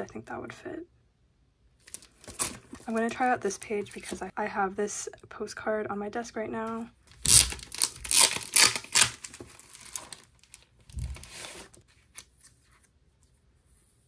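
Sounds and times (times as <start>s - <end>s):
plastic page crinkling: 1.8s - 4.2s, 7.1s - 12.9s.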